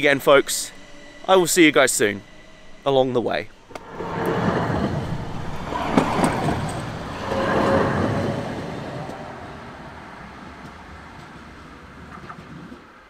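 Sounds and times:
tram running past: 3.4 - 13.0.

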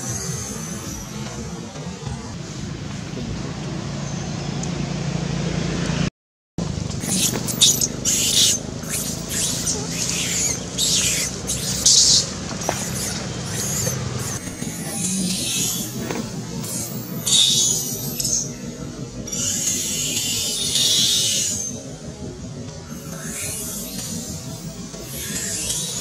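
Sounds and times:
steady low hum: 0.0 - 26.0
baby monkey shrieking: 7.0 - 18.6, 19.3 - 21.7.

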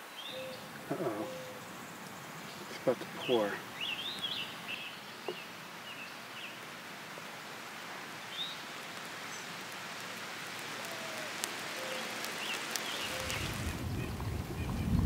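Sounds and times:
rain on foliage: 0.0 - 15.0
bird chirps: 0.1 - 1.6.

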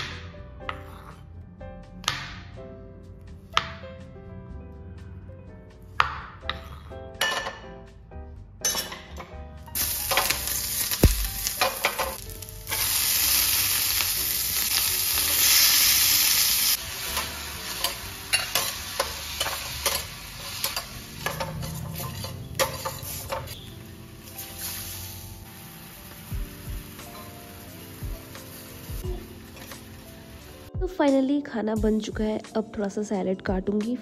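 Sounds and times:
mushrooms sizzling in oil: 9.8 - 30.7
sharp knock: 11.0 - 11.4
metal spatula scraping a pan: 17.2 - 23.6.

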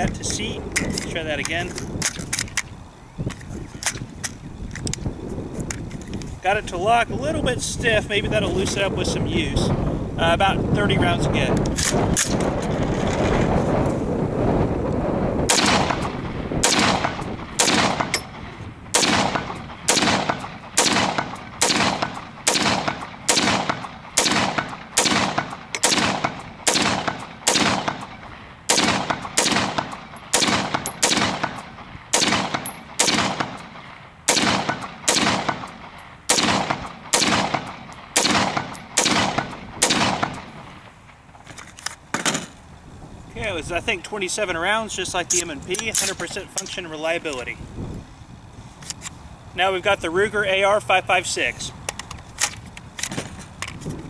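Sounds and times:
rifle gunshots: 15.5 - 40.9.

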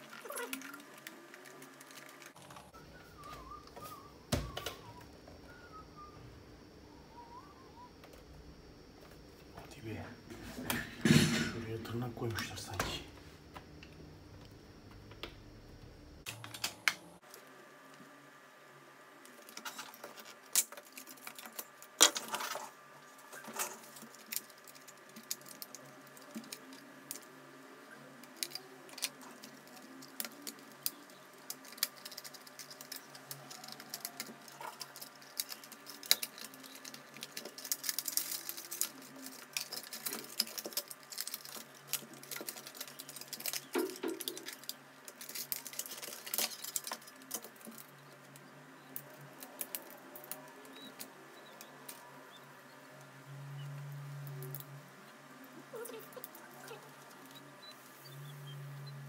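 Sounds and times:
plastic clatter: 19.3 - 27.3, 28.2 - 47.9
plastic parts clicking: 23.3 - 27.4, 28.2 - 52.0.

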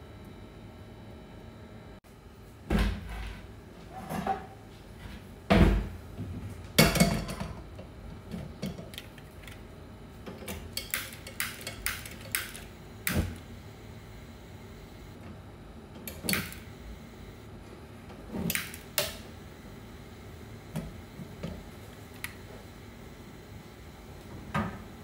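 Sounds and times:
pots clattering on stovetop: 6.8 - 7.7.

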